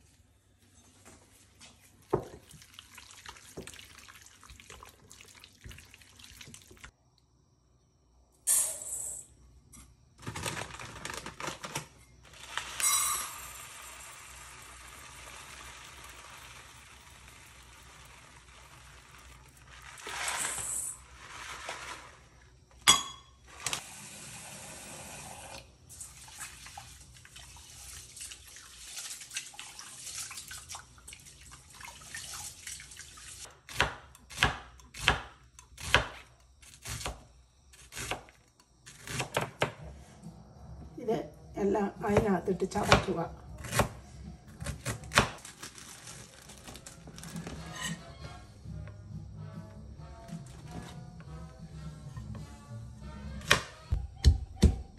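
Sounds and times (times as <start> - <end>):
tap water running into sink: 2.0 - 6.9, 13.4 - 20.2
rice poured into steel bowl: 12.3 - 22.5.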